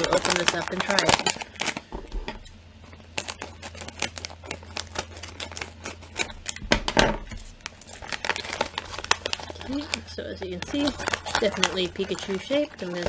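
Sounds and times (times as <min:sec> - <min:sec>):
plastic snack bag crinkling: 0:00.0 - 0:01.9, 0:02.9 - 0:06.6, 0:07.3 - 0:13.0.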